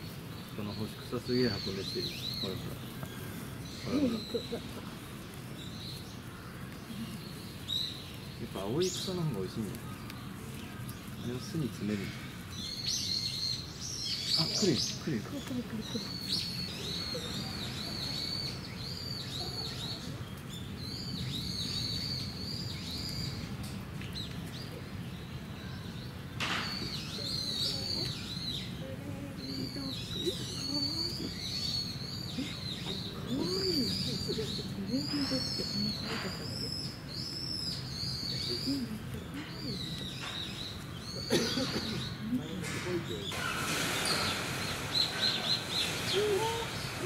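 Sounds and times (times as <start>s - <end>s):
high drawn-out whistling calls: 0.0s - 6.3s, 11.0s - 23.5s, 24.9s - 47.0s
faint voices: 0.5s - 7.6s, 26.6s - 47.0s.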